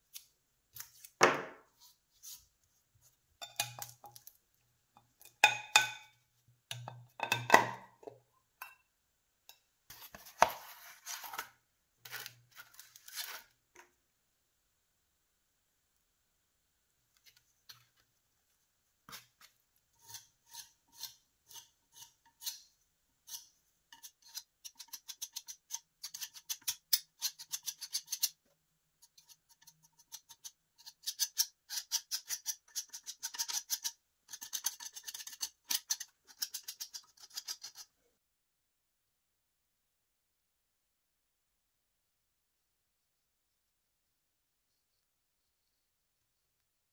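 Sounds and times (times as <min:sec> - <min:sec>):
putty knife scraping filler: 0:19.9 - 0:28.4, 0:29.0 - 0:38.0.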